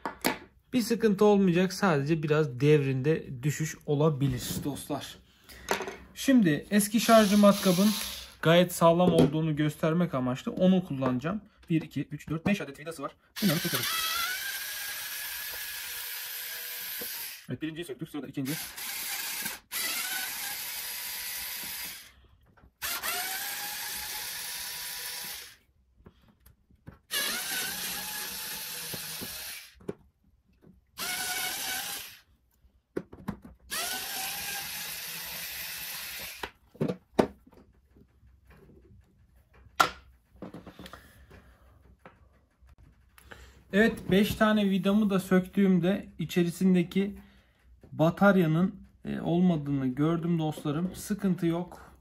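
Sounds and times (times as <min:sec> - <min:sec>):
electric screwdriver whining: 0:07.0 - 0:08.4, 0:13.4 - 0:17.5, 0:18.4 - 0:22.1, 0:22.8 - 0:25.6, 0:27.1 - 0:29.8, 0:31.0 - 0:32.2, 0:33.7 - 0:36.6.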